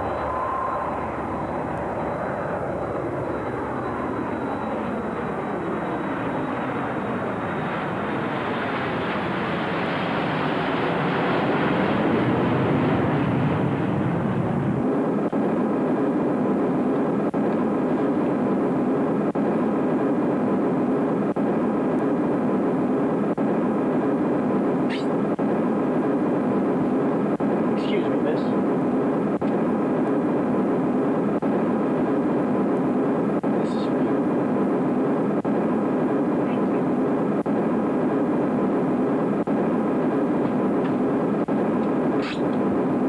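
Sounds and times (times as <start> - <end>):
steady even drone: 0.0 - 9.9
jet airliner taking off: 0.0 - 15.2.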